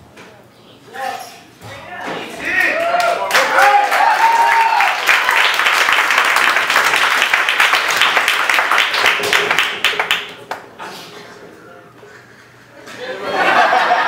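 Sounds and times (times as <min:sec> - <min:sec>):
audience applauding: 0:02.6 - 0:10.7.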